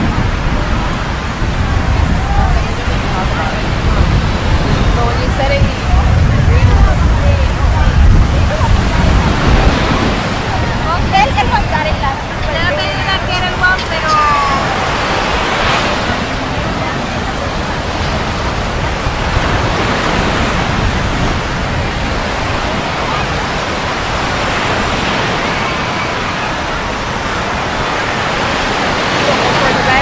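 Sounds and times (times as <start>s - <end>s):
faint voices: 0.0s - 30.0s
ocean surf washing onto beach: 0.0s - 30.0s.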